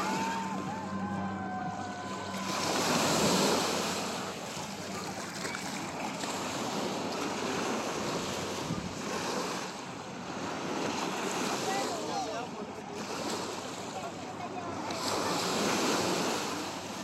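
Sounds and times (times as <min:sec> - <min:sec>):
waves breaking on beach: 0:00.0 - 0:17.0
wind on microphone: 0:08.6 - 0:09.2.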